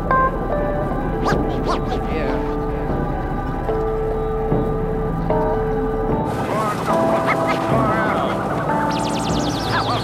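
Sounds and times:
background music with held notes: 0.0 - 10.0
rising swoops: 1.2 - 2.6.

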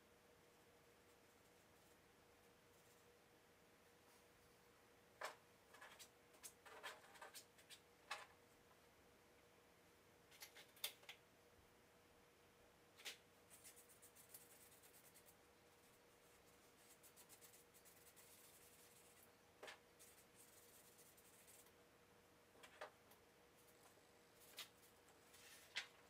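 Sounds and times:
faint steady hum: 0.0 - 26.0
charcoal scratching on paper: 13.5 - 19.3, 20.0 - 21.7.

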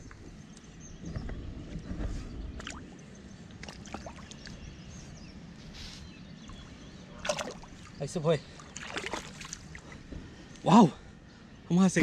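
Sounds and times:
river water sloshing: 2.6 - 5.0, 6.4 - 10.2
fish splashing: 7.2 - 7.9, 8.6 - 9.8.

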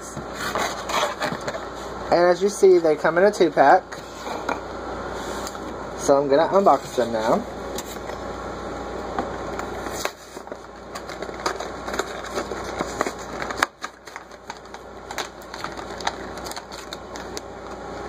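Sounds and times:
plastic packaging tearing: 9.9 - 17.5.

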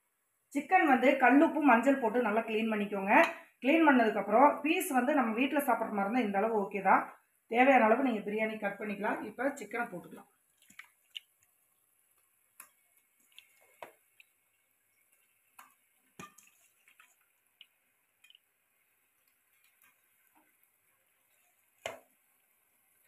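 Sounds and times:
chicken plopping into gravy: 15.5 - 18.5.

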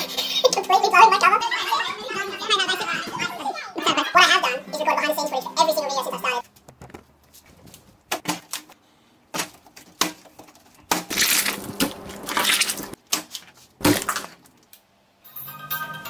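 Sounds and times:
food being squashed by hand: 9.3 - 14.6
watermelon being torn open: 11.0 - 14.6.

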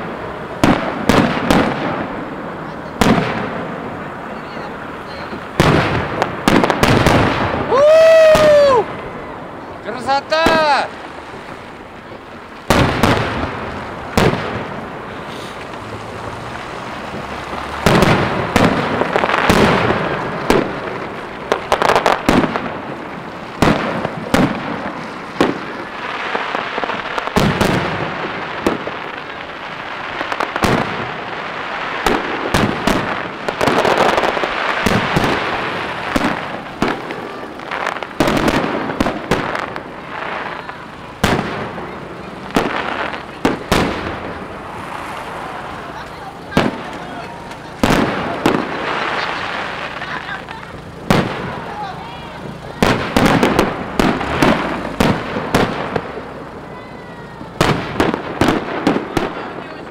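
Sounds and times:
firework bangs: 0.0 - 59.9
firework crackling: 0.0 - 59.9.

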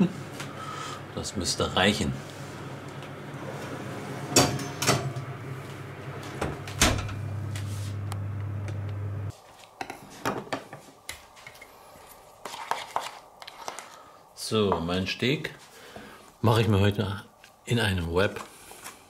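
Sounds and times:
steady low hum: 0.0 - 9.4.

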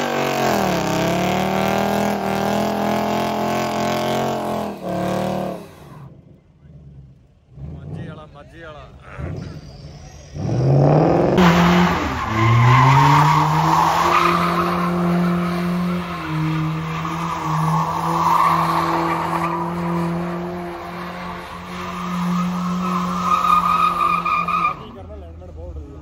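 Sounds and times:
car engine revving: 0.0 - 26.0
tyres screeching: 8.9 - 25.0.

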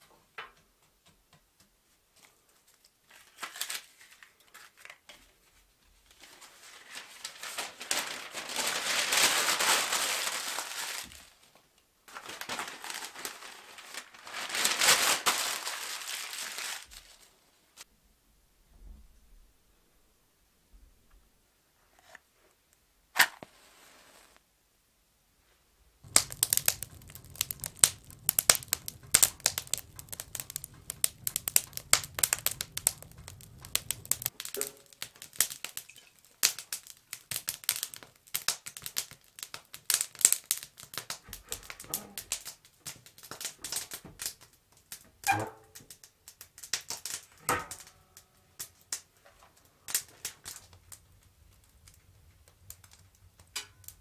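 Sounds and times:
match striking with hiss: 26.0 - 42.6
kindling crackling and popping: 26.0 - 54.0.

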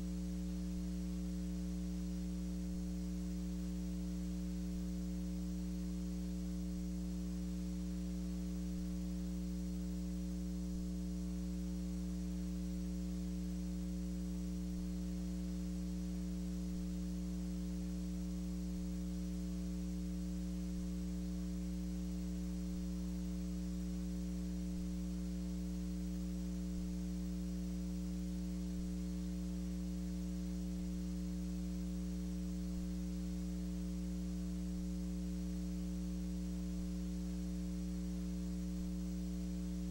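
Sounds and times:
electrical mains hum: 0.0 - 39.9
faint hiss: 0.0 - 39.9.

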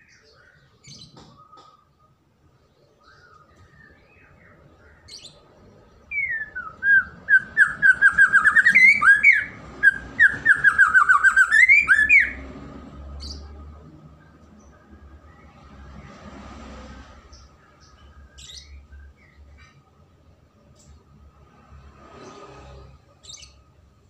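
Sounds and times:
bird singing whistled notes: 6.1 - 12.4.

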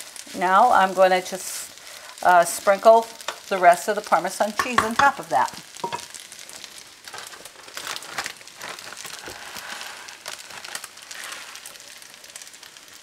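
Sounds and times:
plastic bag crinkling: 6.1 - 13.0.

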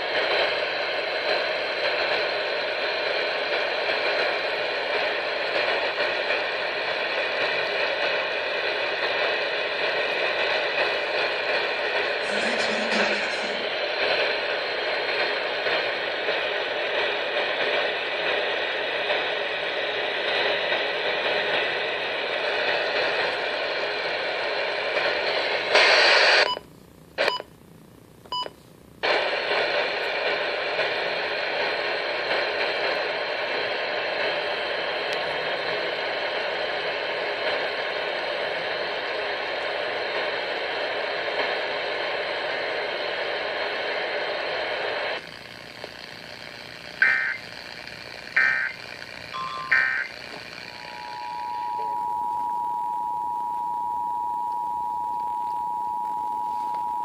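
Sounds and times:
radio static hiss: 0.0 - 26.5, 29.0 - 52.0.

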